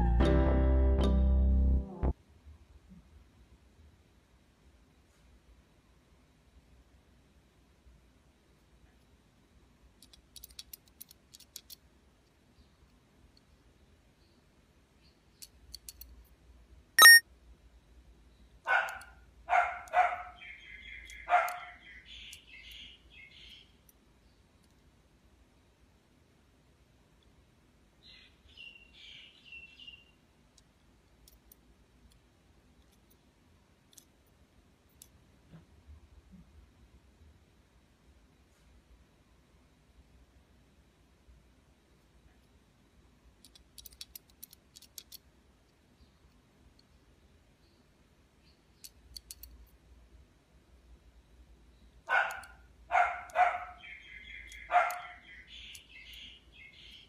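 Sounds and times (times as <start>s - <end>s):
faint short high chirps: 17.0s - 17.2s
high chirping calls: 17.0s - 17.2s, 20.0s - 23.7s, 52.2s - 57.0s
dog barking: 18.7s - 20.4s, 21.3s - 21.8s, 52.1s - 53.9s, 54.7s - 55.2s.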